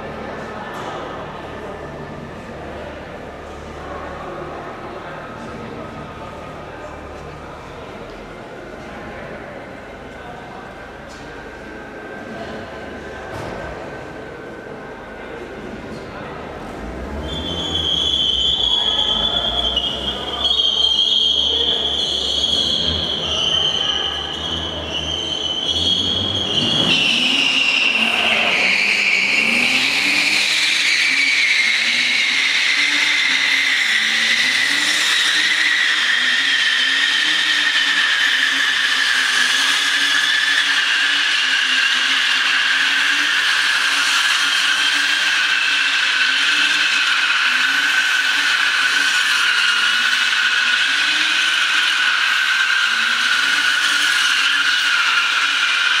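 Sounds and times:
car engine at high revs: 0:00.0 - 0:56.0
tyre squeal: 0:16.6 - 0:56.0.

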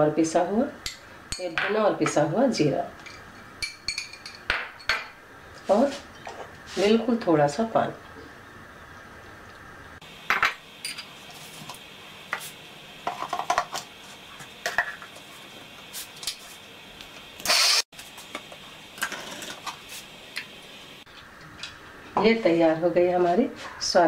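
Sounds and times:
mixer grinder motor burst: 0:17.4 - 0:17.9.

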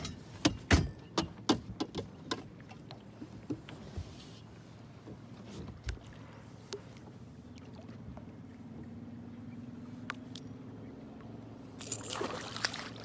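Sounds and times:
fish splashing at surface: 0:11.8 - 0:13.0.

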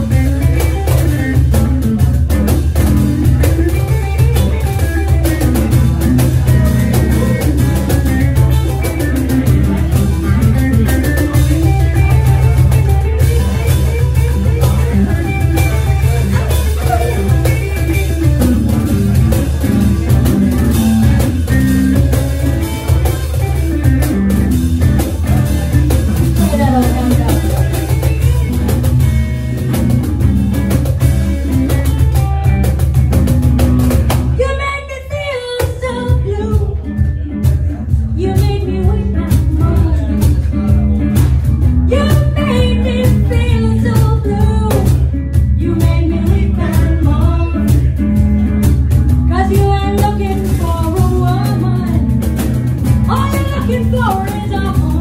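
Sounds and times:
cajon beat: 0:00.0 - 0:55.0
electric guitar playing: 0:00.0 - 0:55.0
woman singing: 0:26.3 - 0:27.7, 0:34.4 - 0:37.4, 0:38.1 - 0:40.7, 0:41.9 - 0:48.0, 0:49.3 - 0:52.2, 0:53.0 - 0:55.0.

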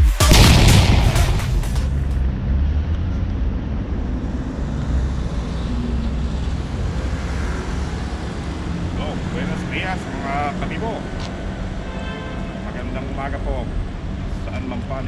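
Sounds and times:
city background rumble: 0:00.3 - 0:15.0.

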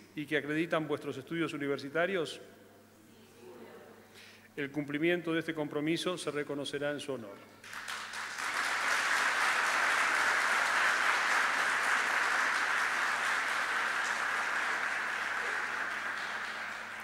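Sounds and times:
audience applauding: 0:07.6 - 0:17.0.

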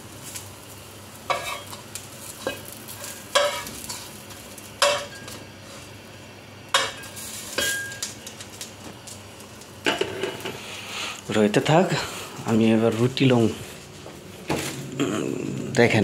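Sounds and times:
faint sizzle of frying: 0:00.0 - 0:16.0
metal spatula scraping a wok: 0:01.3 - 0:01.8, 0:02.4 - 0:04.1.

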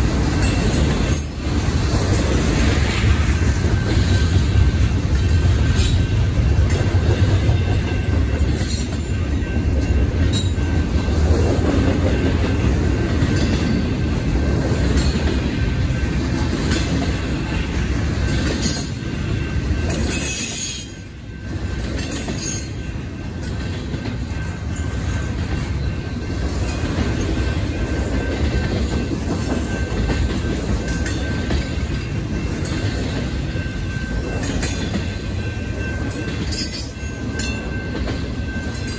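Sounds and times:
train wheels rumbling on rails: 0:00.0 - 0:38.9.

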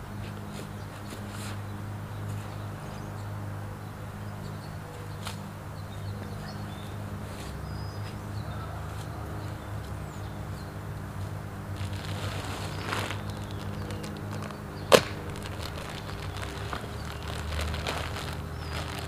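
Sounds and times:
fabric rustling: 0:11.8 - 0:19.0
camping cot frame clicks: 0:12.9 - 0:16.5.

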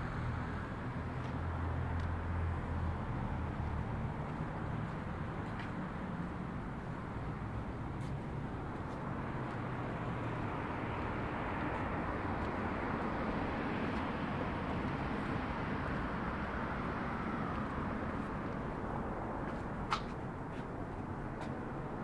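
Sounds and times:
passing cars: 0:00.0 - 0:22.0
footsteps on stone: 0:04.2 - 0:05.9, 0:19.4 - 0:21.7.

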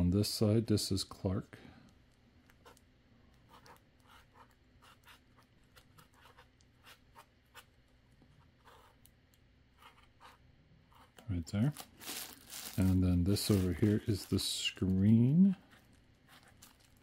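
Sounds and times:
marker writing on foam: 0:03.4 - 0:09.1, 0:09.8 - 0:11.2.

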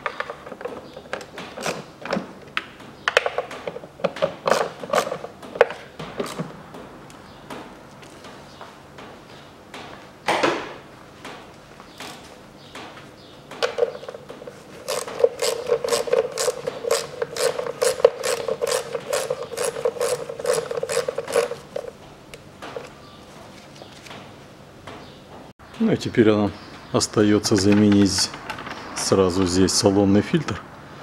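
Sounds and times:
ratchet tool clicking: 0:14.8 - 0:21.9.

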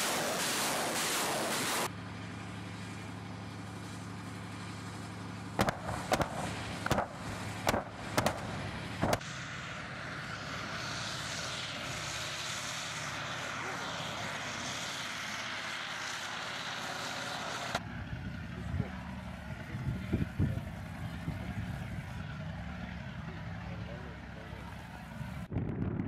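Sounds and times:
rocket roar: 0:00.0 - 0:01.9, 0:05.5 - 0:22.4, 0:24.5 - 0:26.0
tracked vehicle engine and tracks: 0:00.0 - 0:26.0
sharp explosion cracks: 0:05.6 - 0:09.3.

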